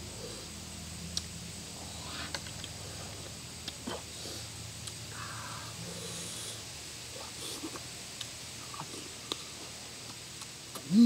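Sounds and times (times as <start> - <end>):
man chewing and mouth noises: 7.2 - 11.0.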